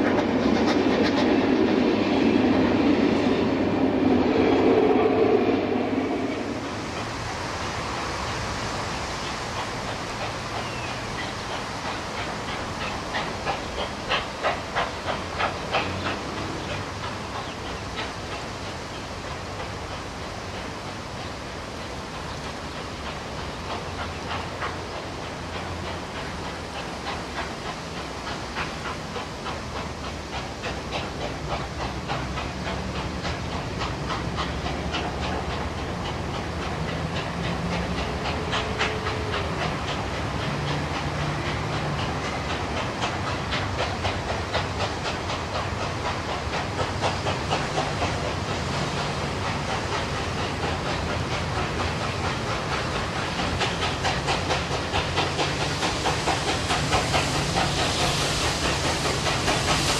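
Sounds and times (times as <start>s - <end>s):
steam hissing: 0.0s - 59.9s
steam locomotive exhaust beats: 0.0s - 59.9s.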